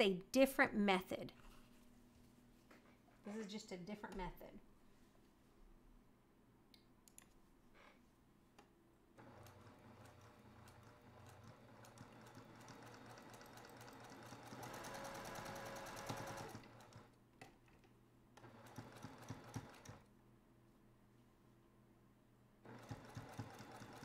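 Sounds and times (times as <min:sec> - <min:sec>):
sewing machine stitching: 0:09.2 - 0:17.1, 0:18.4 - 0:20.0, 0:22.7 - 0:24.0.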